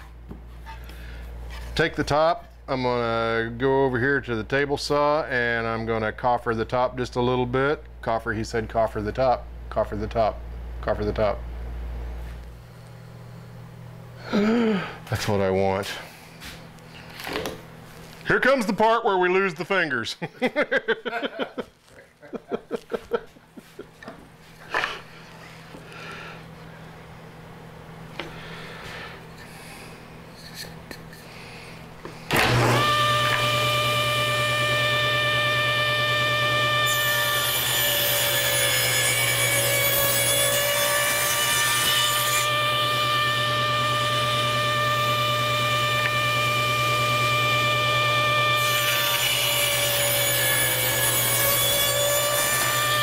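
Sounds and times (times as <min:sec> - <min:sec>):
man chuckling: 0:14.2 - 0:15.0, 0:20.2 - 0:25.0
table saw motor whine: 0:32.3 - 0:53.0.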